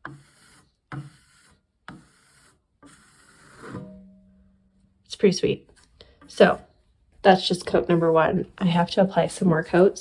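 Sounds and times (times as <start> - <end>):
metal knife scraping plaster: 0.0 - 4.0.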